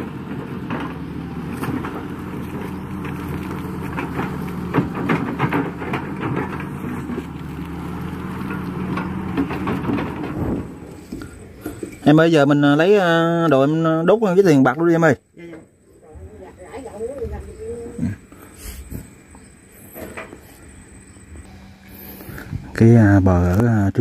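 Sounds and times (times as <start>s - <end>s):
bucket knocking and clattering: 0.0s - 12.0s
excavator diesel engine running: 0.0s - 13.0s, 18.1s - 24.0s.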